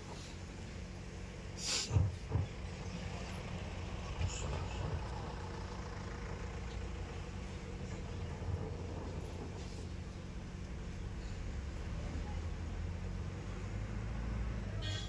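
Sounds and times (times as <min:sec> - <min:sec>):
short hiss: 0:01.6 - 0:02.1.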